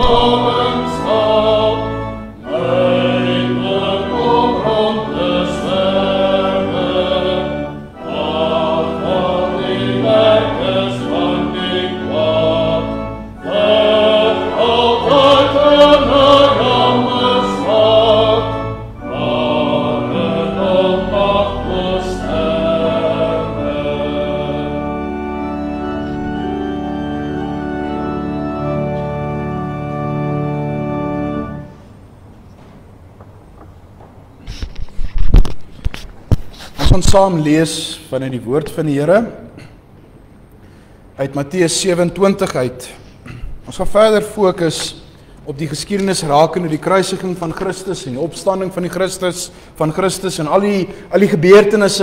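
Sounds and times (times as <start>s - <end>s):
congregation singing a hymn: 0.0s - 31.7s
organ playing chords: 0.0s - 34.4s.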